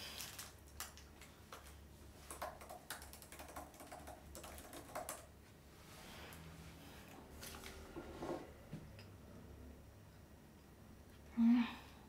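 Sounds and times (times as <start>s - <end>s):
typing on laptop keyboard: 0.2s - 5.3s.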